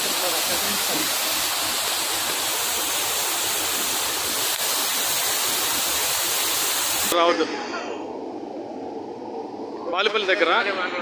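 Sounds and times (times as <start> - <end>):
running water in heavy rain: 0.0 - 7.2.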